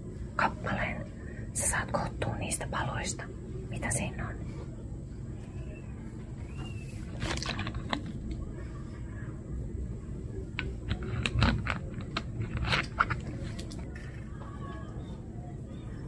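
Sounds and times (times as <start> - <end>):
low background noise: 0.0 - 16.0
small objects clicking and scraping: 7.1 - 8.4, 10.5 - 14.3.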